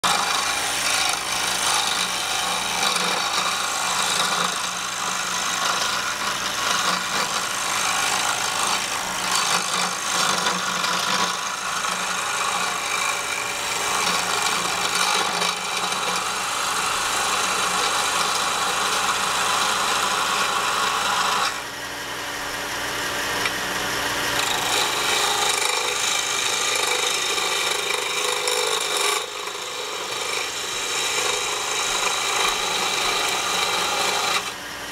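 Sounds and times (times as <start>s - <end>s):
chisel shaving spinning wood: 0.0s - 34.9s
wood lathe humming: 0.0s - 34.9s.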